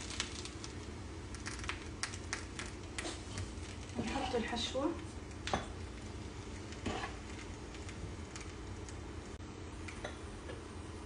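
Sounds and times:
steady low hum: 0.0 - 11.0
spoon scraping pan: 6.8 - 7.2.

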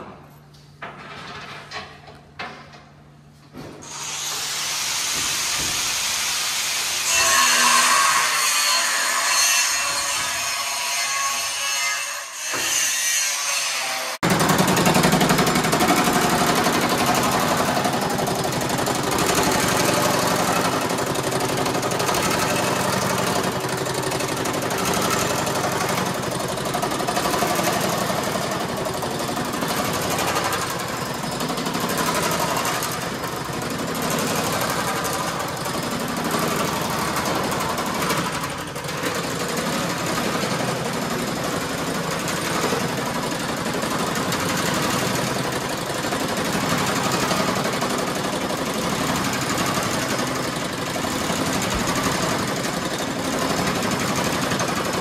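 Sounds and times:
power hammer hammering metal panel: 14.2 - 55.0.

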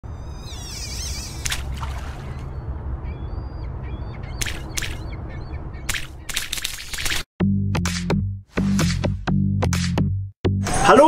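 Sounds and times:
birds calling: 0.1 - 7.2.

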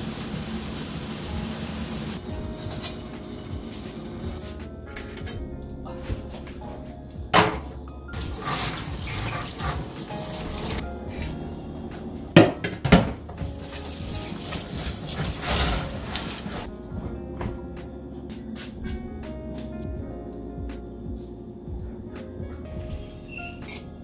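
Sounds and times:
background music: 1.2 - 24.0
kitchen tap running into sink: 8.2 - 10.8, 13.6 - 16.7.

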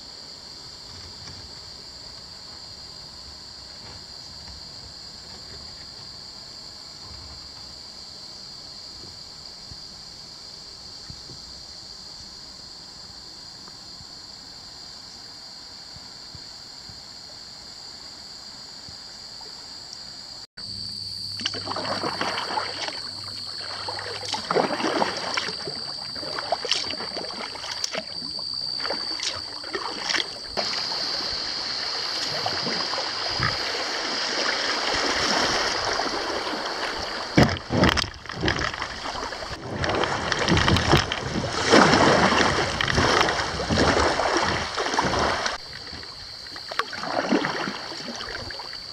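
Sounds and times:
faint steady hiss: 0.0 - 37.5
choppy water through riffle: 21.3 - 48.9
kayak paddle splashing: 21.4 - 48.9.

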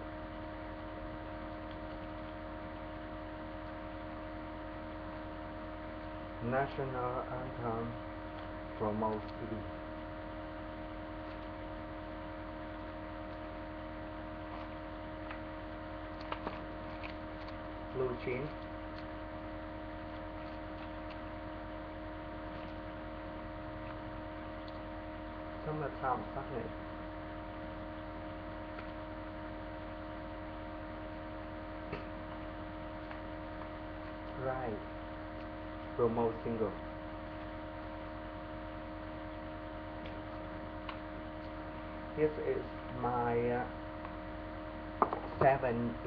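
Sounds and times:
electrical mains hum with hiss: 0.0 - 46.0.

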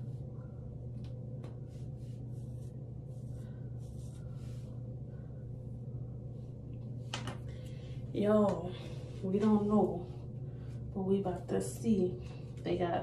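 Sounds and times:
steady low hum: 0.0 - 13.0
brush strokes through hair: 1.4 - 5.6.

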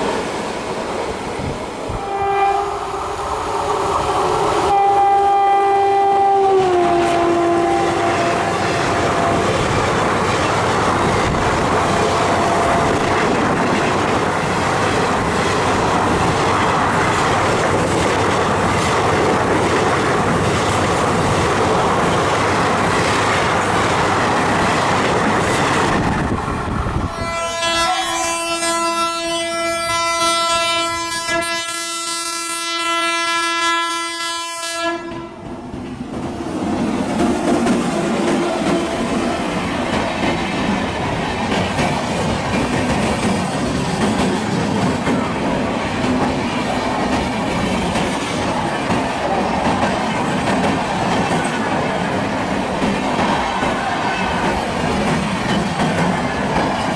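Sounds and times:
train wheel and rail noise: 0.0 - 56.9
electric locomotive horn: 1.9 - 2.9, 4.7 - 9.6, 27.0 - 35.4
long steady locomotive horn: 1.9 - 3.0, 4.7 - 9.6, 12.2 - 13.0, 27.0 - 35.4.

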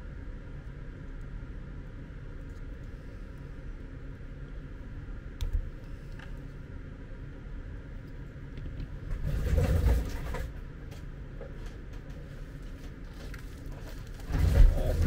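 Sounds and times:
low background rumble: 0.0 - 15.0
rustling and scraping: 8.7 - 15.0.

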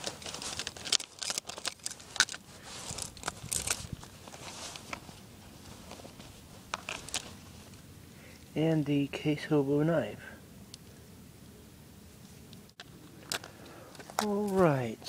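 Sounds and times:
rustling: 0.0 - 8.6.

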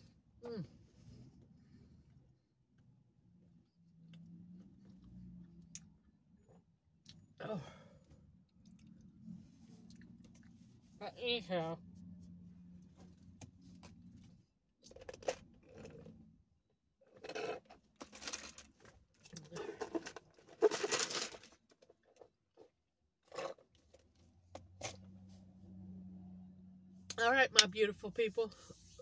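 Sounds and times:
plastic cup and straw rattling: 17.2 - 22.3.

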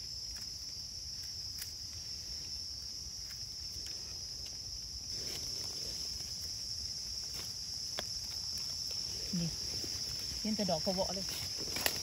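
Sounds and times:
high-pitched insect chorus: 0.0 - 12.0
rustling of leaf litter: 1.4 - 12.0.

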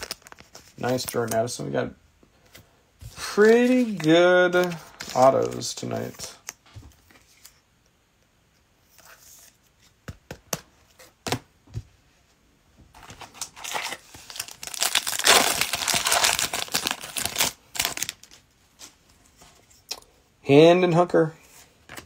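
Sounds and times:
wrapper tearing and crinkling: 0.0 - 1.3, 13.2 - 18.4.

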